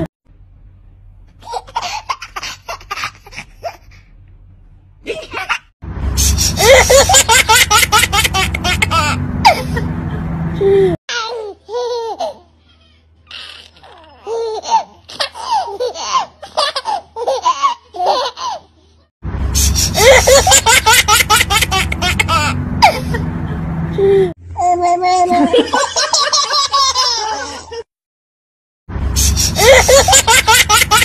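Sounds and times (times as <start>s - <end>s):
infants laughing and squealing: 6.2s - 9.9s, 10.7s - 18.9s, 19.6s - 23.3s, 26.7s - 27.9s, 29.2s - 31.0s
baby giggling: 6.6s - 9.9s, 24.6s - 27.8s, 29.5s - 31.0s.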